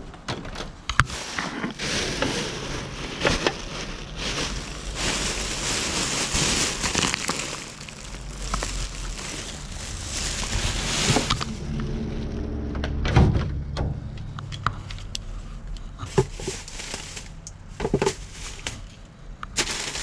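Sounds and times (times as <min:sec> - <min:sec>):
plastic bags rustling: 0:01.1 - 0:12.4, 0:16.1 - 0:20.0.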